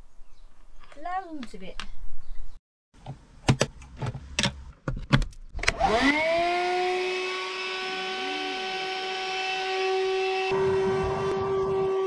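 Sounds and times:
handheld vacuum motor whining: 5.6 - 12.0.

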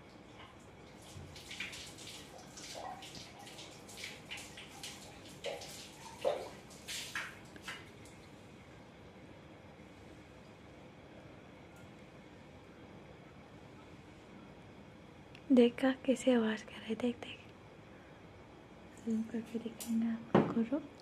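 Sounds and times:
water splashing: 0.9 - 8.3.

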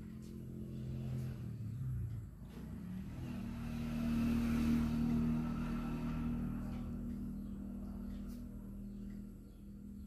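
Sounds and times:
vehicle engine humming: 0.0 - 10.0.

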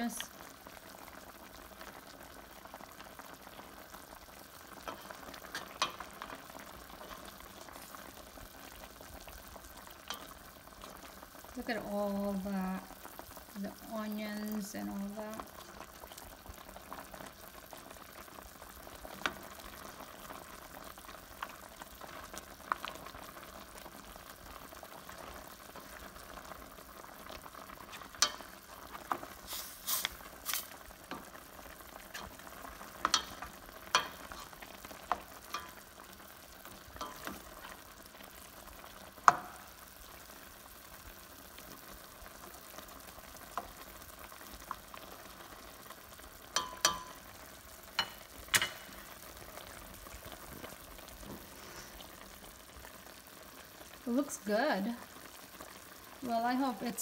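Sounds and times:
sauce simmering with bubbling hiss: 0.0 - 57.0
spoon knocking against pan: 33.0 - 34.3, 39.2 - 39.6, 46.6 - 47.2, 48.0 - 48.9.

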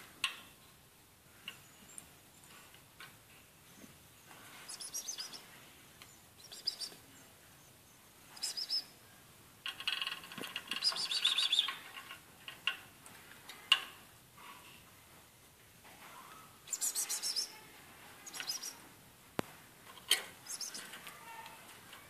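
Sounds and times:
bird high chirps: 4.7 - 5.5, 6.4 - 7.3, 8.3 - 8.9, 10.8 - 11.8, 16.2 - 17.6, 18.2 - 18.8, 20.4 - 20.9.

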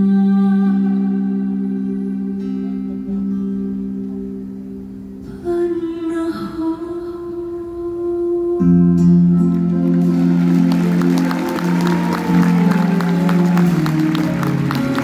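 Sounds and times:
live band music: 9.4 - 15.0
audience clapping: 9.5 - 15.0.

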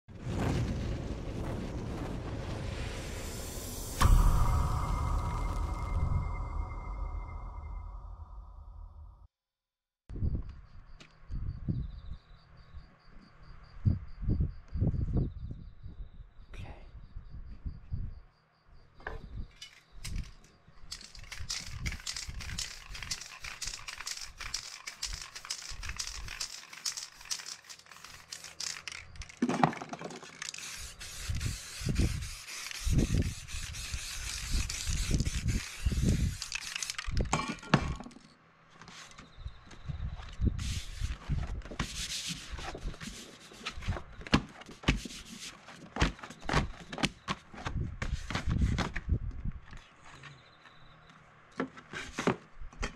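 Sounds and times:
spray can hissing: 20.9 - 29.4, 30.2 - 37.2
paper crinkling and rubbing: 21.0 - 29.5, 30.2 - 37.2, 40.6 - 46.8.

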